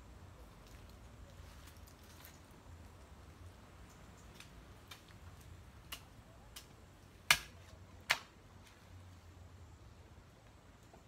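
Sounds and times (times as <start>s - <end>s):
hoe chopping into soil: 7.2s - 8.3s.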